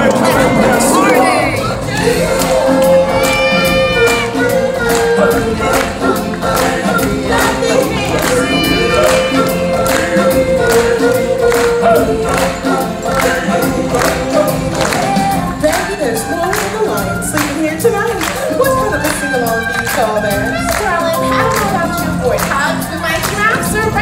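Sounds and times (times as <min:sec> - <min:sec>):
choir singing long notes: 0:00.0 - 0:17.2
steady percussion beat: 0:00.0 - 0:24.0.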